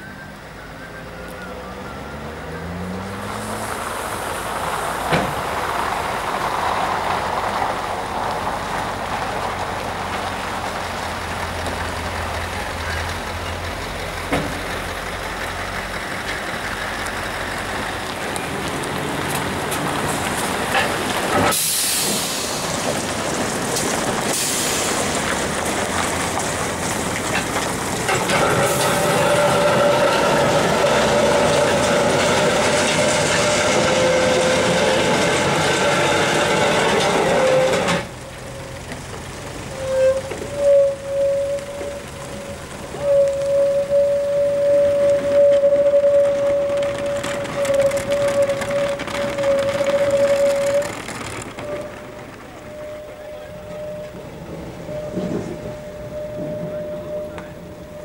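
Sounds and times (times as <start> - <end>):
diesel truck engine drone: 0.0 - 58.0
air brake hisses: 21.4 - 22.7, 24.3 - 25.1
steady whine: 40.7 - 58.0.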